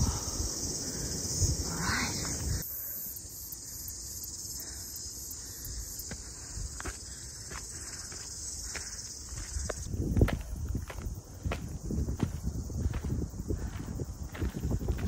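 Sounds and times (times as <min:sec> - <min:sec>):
insects trilling: 0:00.0 - 0:15.0
footsteps on dirt: 0:06.0 - 0:15.0.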